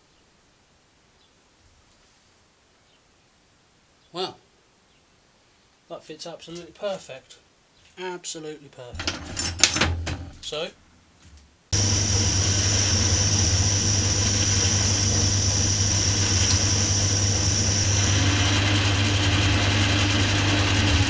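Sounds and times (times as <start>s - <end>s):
metal lathe motor whine: 11.8s - 21.0s.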